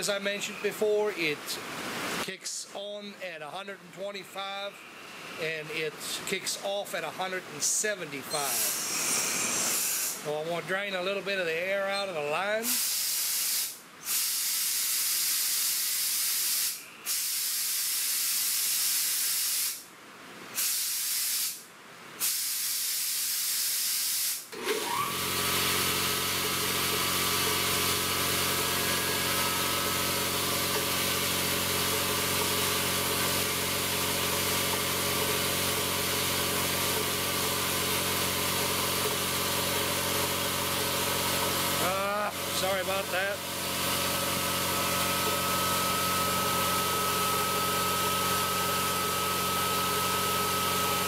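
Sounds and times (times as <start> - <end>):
electric air compressor running: 8.3 - 10.2, 12.6 - 19.8, 20.6 - 21.6, 22.2 - 51.0
compressed air hissing: 8.3 - 10.3, 12.7 - 19.8, 20.5 - 21.6, 22.2 - 24.5.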